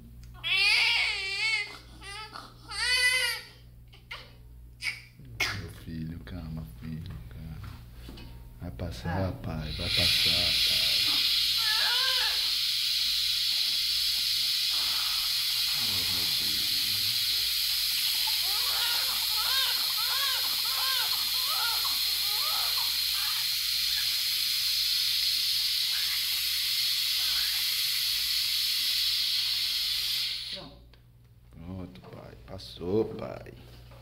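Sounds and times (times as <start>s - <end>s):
newborn baby crying: 0.4s - 5.6s, 10.6s - 12.6s, 18.0s - 24.2s
steady loud hiss: 9.4s - 30.8s.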